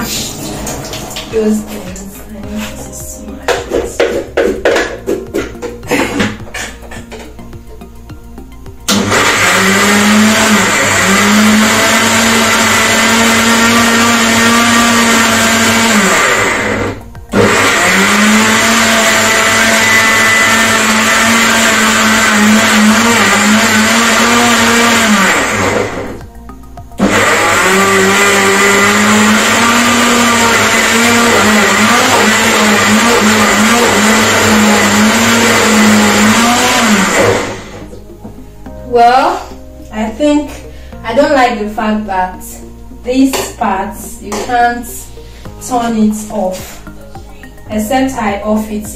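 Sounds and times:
blender motor running: 0:08.9 - 0:26.2, 0:27.0 - 0:37.8.

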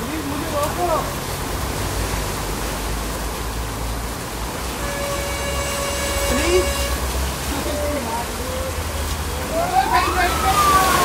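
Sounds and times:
floodwater rushing: 0:00.0 - 0:11.0
heavy rain pouring: 0:00.0 - 0:11.0.

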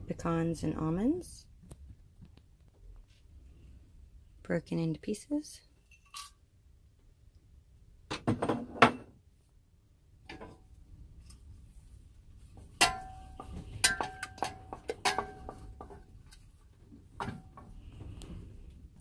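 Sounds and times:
wooden spoon stirring porridge: 0:10.3 - 0:19.0
spoon knocking on saucepan: 0:12.8 - 0:16.0.

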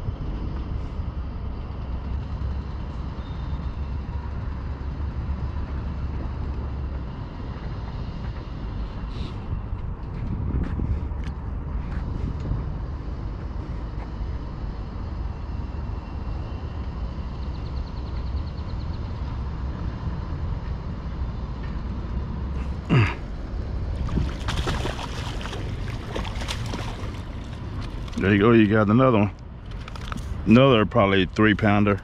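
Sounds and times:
wind on microphone: 0:08.6 - 0:13.6, 0:23.8 - 0:28.2
fish splashing in water: 0:23.9 - 0:28.2.

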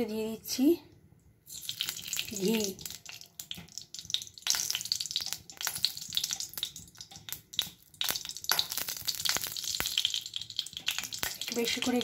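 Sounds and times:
ghee sizzling and crackling: 0:01.4 - 0:12.0.

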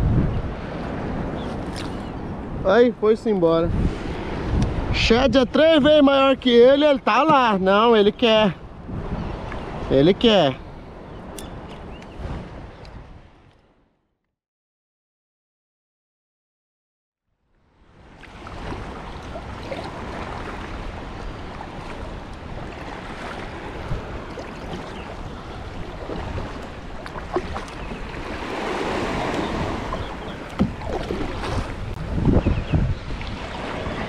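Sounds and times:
wind buffeting microphone: 0:00.0 - 0:13.6, 0:18.0 - 0:34.0
water sloshing around kayak: 0:18.0 - 0:32.3, 0:32.9 - 0:34.0
thumps: 0:30.5 - 0:31.3.

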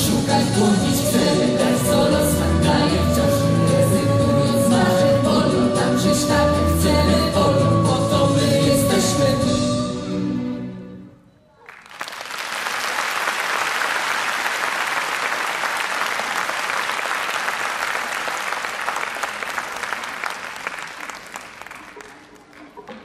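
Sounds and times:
audience applauding: 0:11.6 - 0:23.0.

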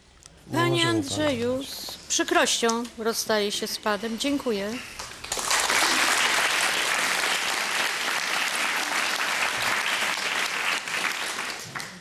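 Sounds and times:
audience applauding: 0:05.0 - 0:12.0.

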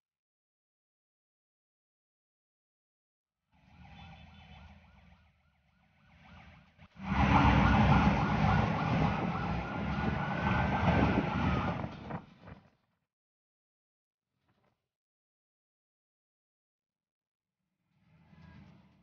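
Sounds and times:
siren wailing: 0:03.6 - 0:12.2
vehicle engine and road rumble: 0:05.9 - 0:12.7.

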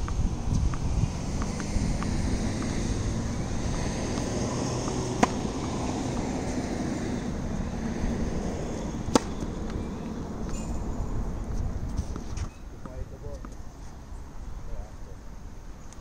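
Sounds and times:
tennis ball being struck: 0:00.0 - 0:10.8.

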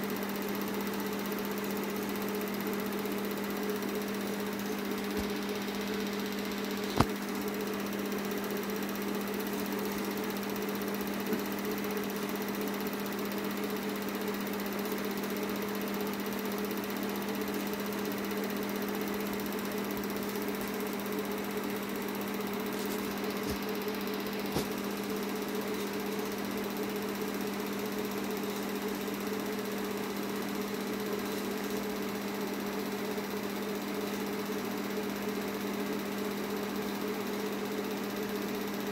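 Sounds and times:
film projector whirring: 0:00.0 - 0:38.9
constant low hum: 0:04.4 - 0:07.7, 0:19.3 - 0:29.6.

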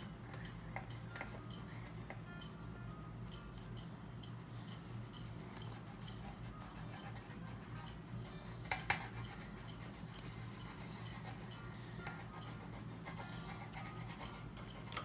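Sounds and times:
coloured pencils scratching on paper: 0:04.6 - 0:08.0, 0:08.6 - 0:15.0.

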